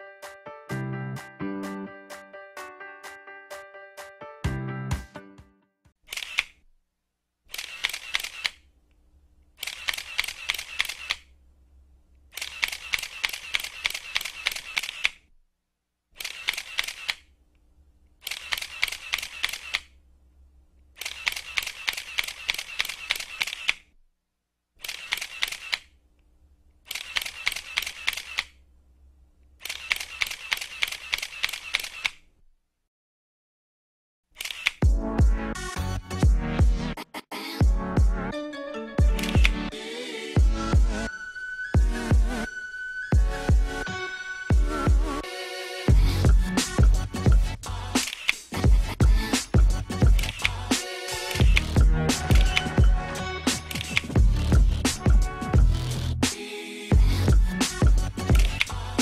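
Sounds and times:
camera shutter clicks: 6.1 - 6.6, 7.5 - 8.6, 9.6 - 11.3, 12.3 - 15.2, 16.2 - 17.3, 18.2 - 19.9, 21.0 - 23.9, 24.8 - 25.9, 26.9 - 28.6, 29.6 - 32.3, 34.4 - 34.8, 48.0 - 48.5, 51.3 - 52.7, 53.6 - 54.2, 58.3 - 58.7.

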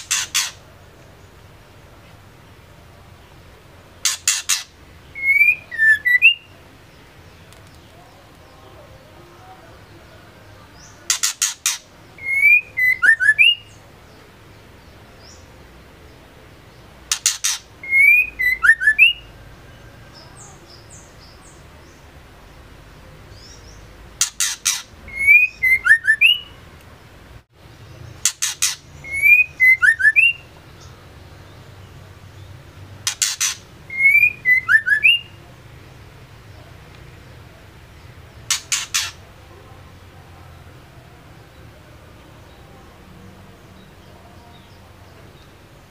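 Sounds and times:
bird calling: 0.0 - 0.7, 4.0 - 6.6, 10.8 - 13.8, 17.1 - 19.3, 23.4 - 26.6, 28.2 - 30.9, 33.0 - 35.4, 38.4 - 39.3.

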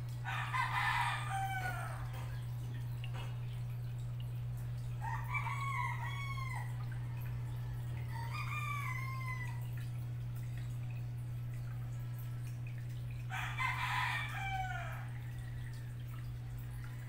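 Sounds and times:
steady low hum: 0.0 - 17.0
rooster crowing: 0.2 - 2.2, 5.0 - 9.7, 13.3 - 16.0.

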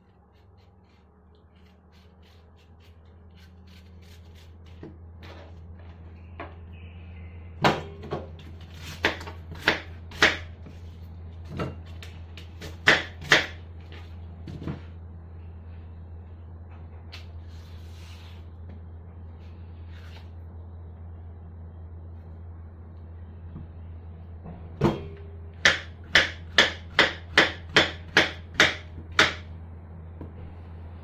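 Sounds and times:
steady low hum: 0.0 - 31.0.

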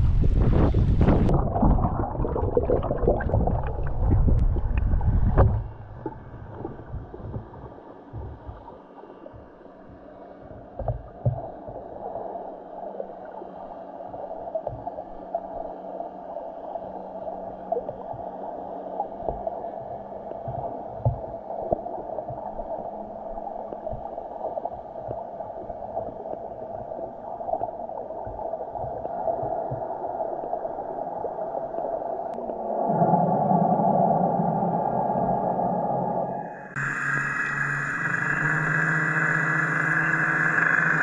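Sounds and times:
low underwater thumps: 0.0 - 11.9, 14.6 - 15.0, 19.1 - 22.7, 23.8 - 29.9
muffled underwater wash: 0.0 - 41.0.

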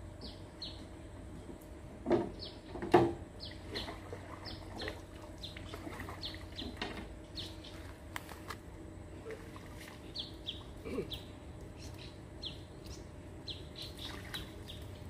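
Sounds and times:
small birds chirping: 0.2 - 0.9, 3.4 - 8.0, 10.0 - 15.0
water splashing: 3.6 - 7.0, 13.9 - 14.8.

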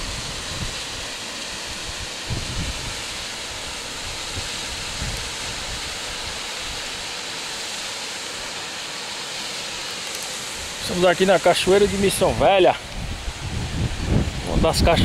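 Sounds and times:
waterfall rushing over rocks: 0.0 - 15.0
wind thumps on microphone: 2.3 - 3.0, 4.4 - 5.8, 12.3 - 15.0.

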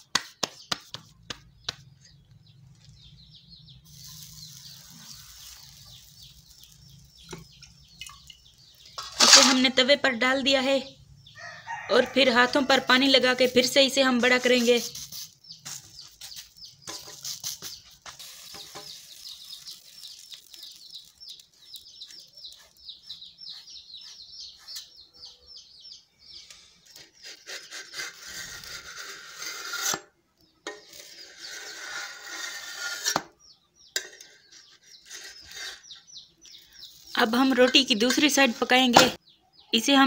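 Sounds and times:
hands rubbing dough on griddle: 0.0 - 2.0, 14.2 - 24.9
bird chirping: 0.0 - 29.5, 30.3 - 40.0.

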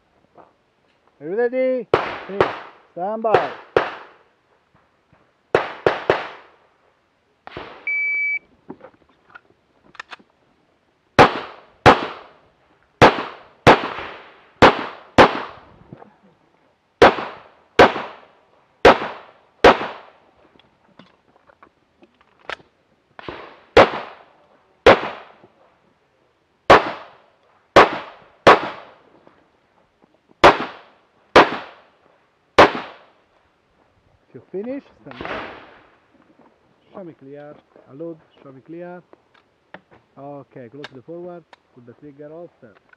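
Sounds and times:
rapid pistol fire: 1.9 - 4.2, 5.5 - 6.5, 11.2 - 12.4, 13.0 - 15.6, 17.0 - 20.2, 23.2 - 25.4, 26.7 - 27.2, 27.8 - 28.9, 30.4 - 31.8, 32.6 - 33.1
shot timer beep: 7.9 - 8.4.

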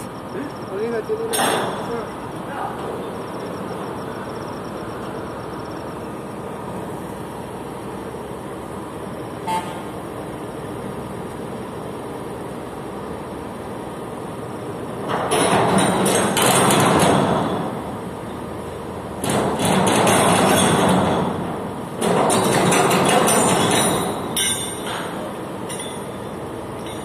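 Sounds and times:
cargo machinery droning: 0.0 - 27.0
machinery clattering: 15.0 - 17.9, 19.2 - 27.0.

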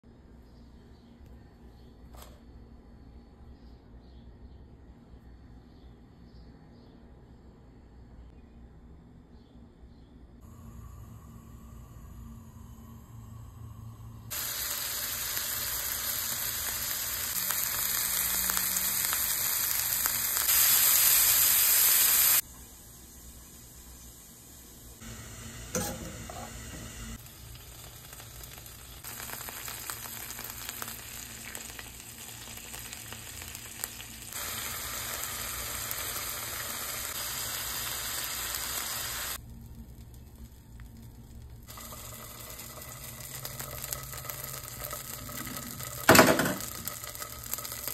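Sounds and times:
sausage sizzling in oil: 10.6 - 47.9.

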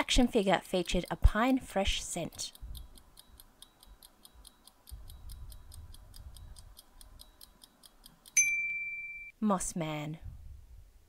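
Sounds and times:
countdown timer ticking: 0.0 - 9.3
high beep: 8.4 - 9.4.

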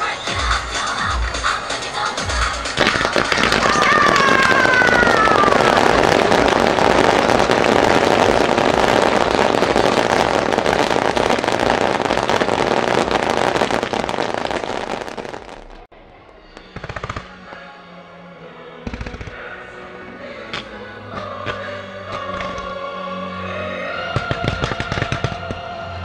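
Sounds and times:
fireworks crackling and banging: 0.0 - 15.9, 16.5 - 17.7, 18.9 - 19.4, 20.5 - 22.8, 24.1 - 26.0
fireworks whistling: 0.0 - 15.9, 16.5 - 17.7, 24.2 - 25.6.

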